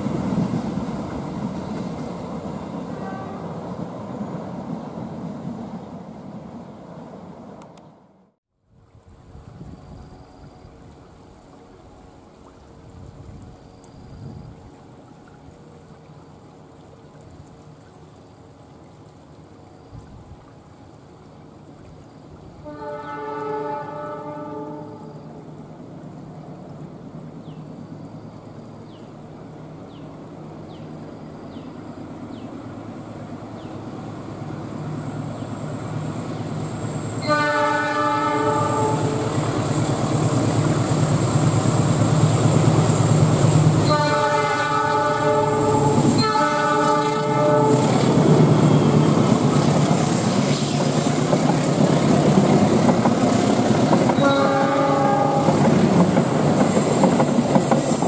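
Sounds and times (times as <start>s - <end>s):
train horn blasts: 2.8s - 3.7s, 22.6s - 25.4s, 37.0s - 39.5s, 43.7s - 49.0s, 54.1s - 55.8s
locomotive engine: 28.2s - 58.0s
wheels clacking over rail joints: 45.7s - 58.0s.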